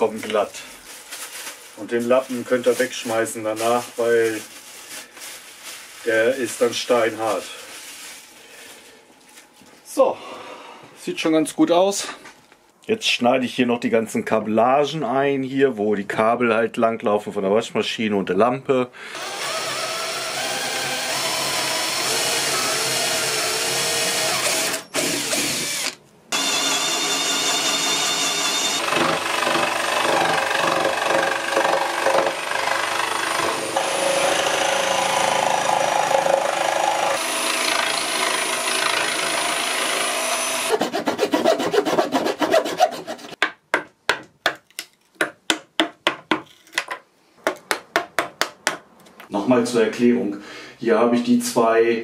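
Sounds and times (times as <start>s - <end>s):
cordless drill boring into wood: 19.1s - 40.8s
jigsaw cutting wood: 19.1s - 43.4s.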